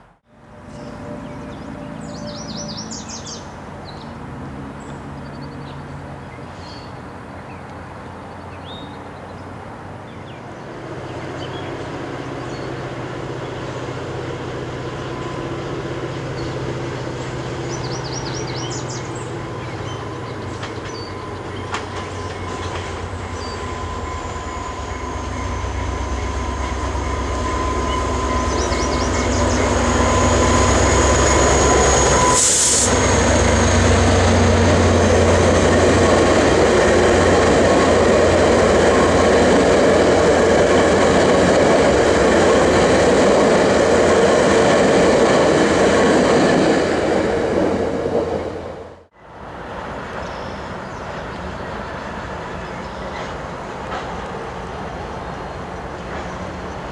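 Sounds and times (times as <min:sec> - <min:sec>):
diesel locomotive drone: 0:00.0 - 0:56.9
train wheels rushing on rails: 0:09.6 - 0:56.9
train wheels squealing: 0:14.8 - 0:41.5.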